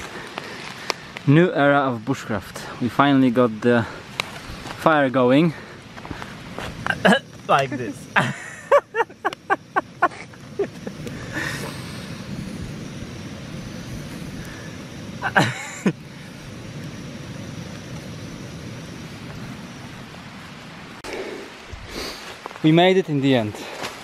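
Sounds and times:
gas stove burning with hiss: 0:00.0 - 0:24.0
person's voice: 0:07.1 - 0:08.2.

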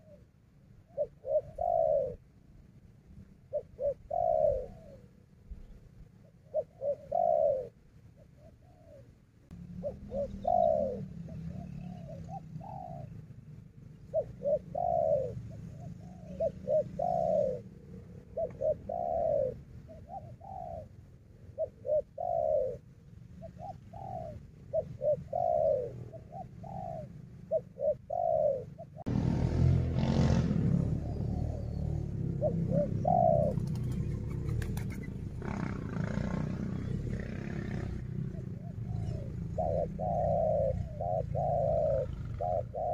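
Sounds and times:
dove cooing: 0:00.0 - 0:29.1, 0:29.9 - 0:42.9
loud rough noise: 0:35.4 - 0:38.0.

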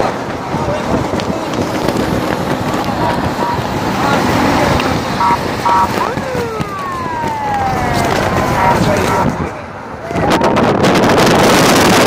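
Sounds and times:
road and wind noise in car: 0:00.0 - 0:12.0
siren sweeping up and down: 0:02.8 - 0:09.6
car horn beeps: 0:02.9 - 0:03.7, 0:05.2 - 0:06.1, 0:08.6 - 0:09.4.

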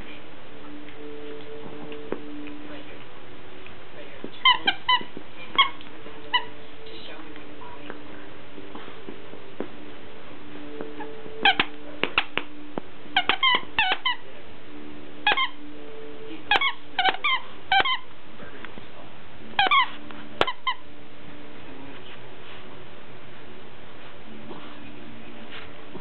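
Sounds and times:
dog toy squeaking: 0:04.4 - 0:06.6, 0:11.0 - 0:12.4, 0:13.1 - 0:14.2, 0:15.2 - 0:15.7, 0:16.5 - 0:18.1, 0:19.6 - 0:20.9.

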